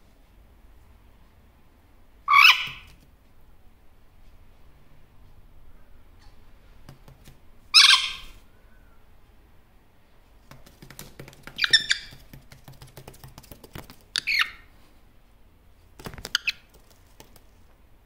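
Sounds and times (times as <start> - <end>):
parrot squawking and chattering: 2.3 - 3.0, 7.7 - 8.4, 11.5 - 12.2, 14.1 - 14.7.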